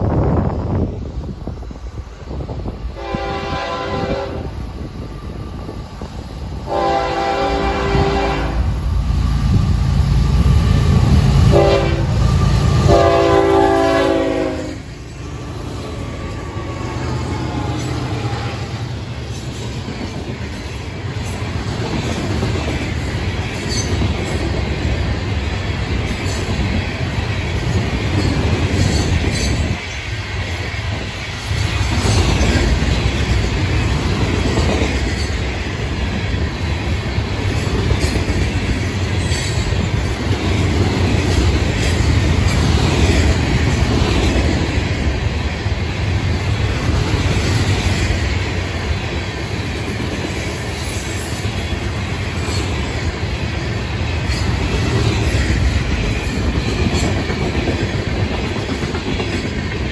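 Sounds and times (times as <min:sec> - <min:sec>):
locomotives rumbling past: 0:02.1 - 0:50.8
train air horn blasts: 0:03.0 - 0:04.6, 0:06.7 - 0:08.7, 0:11.5 - 0:18.9
steel wheels clattering and squealing: 0:23.6 - 0:24.4, 0:28.2 - 0:29.9.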